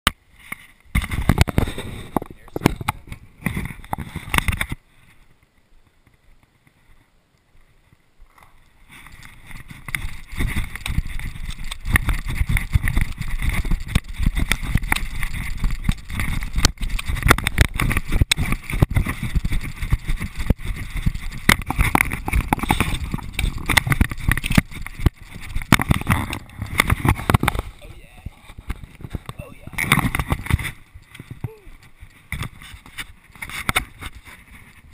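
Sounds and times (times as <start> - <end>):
running footsteps on dry grass: 8.7 - 34.9.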